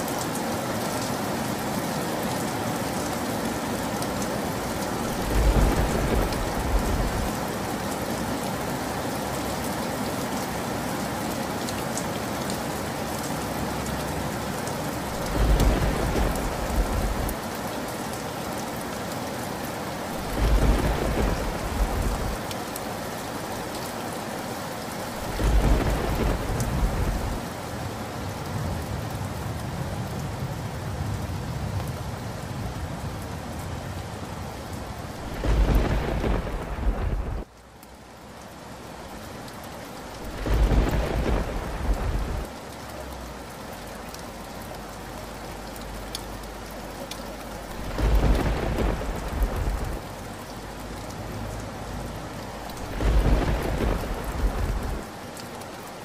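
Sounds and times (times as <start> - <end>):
steady rain: 0.0 - 56.0
thunder rumbling: 5.0 - 7.4, 15.1 - 17.4, 20.1 - 22.4, 25.1 - 27.4, 35.2 - 37.5, 40.2 - 42.5, 47.7 - 50.1, 52.7 - 55.1.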